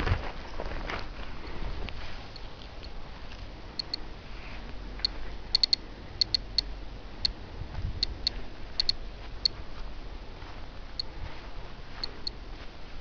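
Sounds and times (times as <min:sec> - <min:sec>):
dosimeter high pips: 0:05.0 - 0:07.4, 0:08.0 - 0:09.6.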